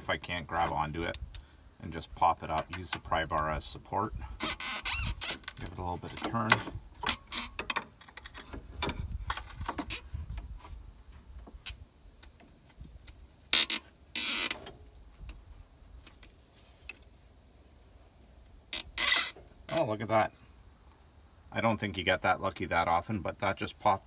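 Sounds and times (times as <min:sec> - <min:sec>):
short scraping rasps: 0:04.3 - 0:10.8, 0:13.5 - 0:14.8, 0:18.7 - 0:19.9
metal tool creaking on rubber: 0:04.4 - 0:10.6, 0:13.5 - 0:14.8, 0:18.7 - 0:19.9.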